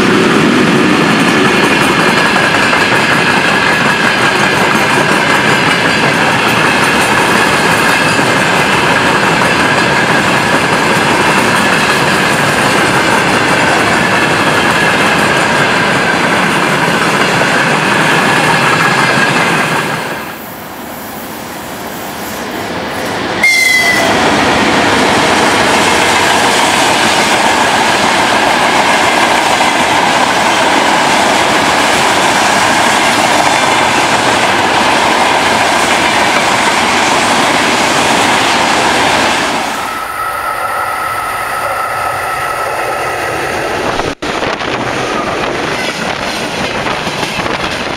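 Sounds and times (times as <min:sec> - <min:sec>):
wheels clacking over rail joints: 0:00.0 - 0:20.2
freight train rolling past: 0:00.0 - 0:47.9.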